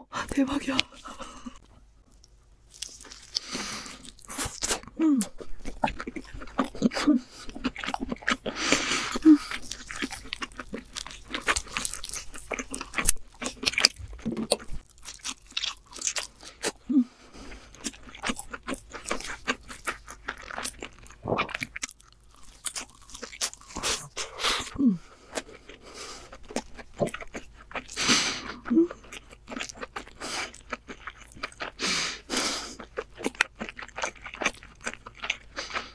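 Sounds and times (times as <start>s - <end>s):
crunching and chewing: 0.8s - 35.9s
person humming mm: 24.4s - 25.1s.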